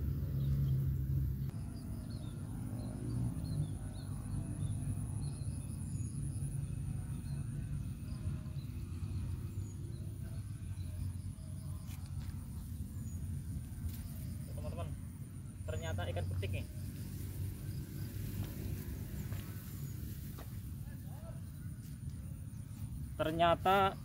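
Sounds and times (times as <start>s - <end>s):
high insect buzz: 11.2s - 20.7s.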